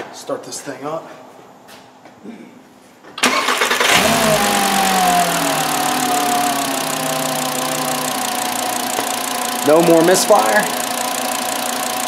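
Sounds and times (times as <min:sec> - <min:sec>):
car engine cranking and idling: 0:03.2 - 0:12.0.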